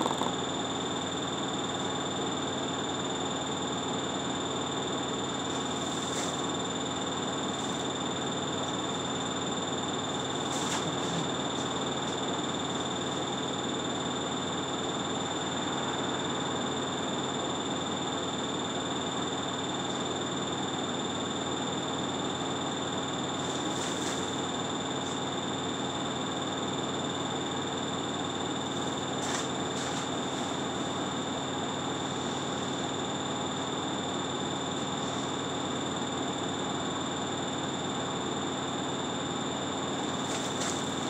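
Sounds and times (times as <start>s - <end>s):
constant high-pitched whine: 0.0s - 41.0s.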